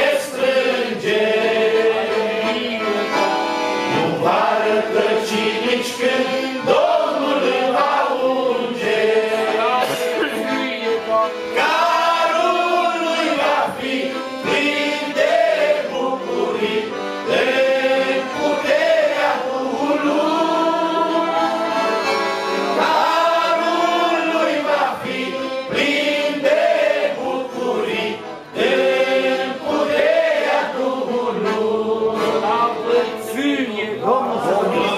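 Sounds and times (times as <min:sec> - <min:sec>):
man singing a hymn: 0:00.0 - 0:15.0, 0:31.4 - 0:34.9
piano accordion: 0:00.0 - 0:34.9.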